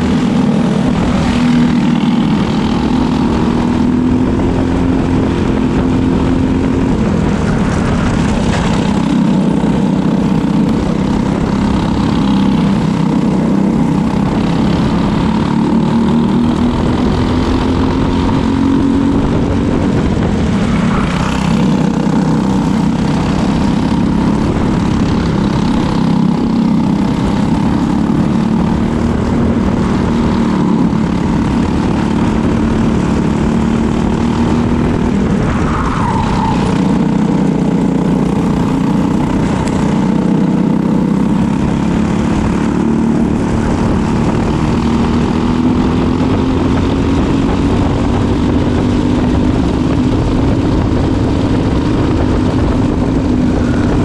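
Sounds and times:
kart engine revving: 0.0 - 54.0.

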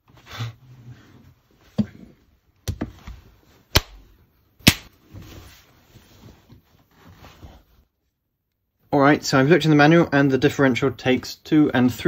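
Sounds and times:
hand slaps: 3.7 - 4.0, 4.6 - 5.0.

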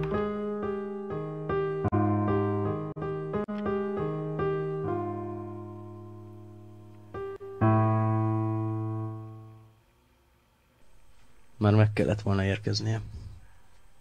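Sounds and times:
slow piano music: 0.0 - 9.8.

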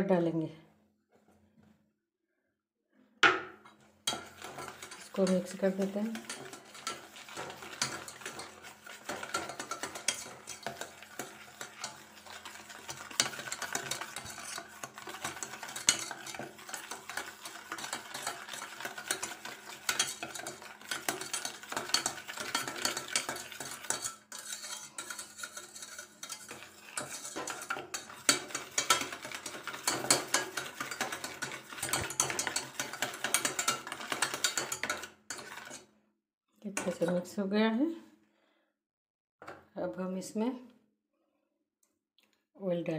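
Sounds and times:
whisk scraping a metal pan: 3.7 - 35.9, 36.7 - 37.3.

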